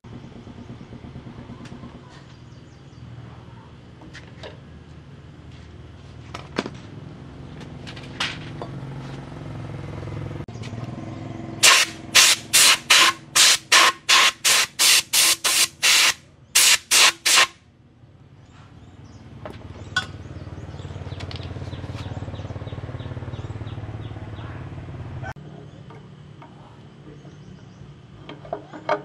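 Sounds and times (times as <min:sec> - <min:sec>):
compressed air blow gun blasts: 0:11.6 - 0:17.6.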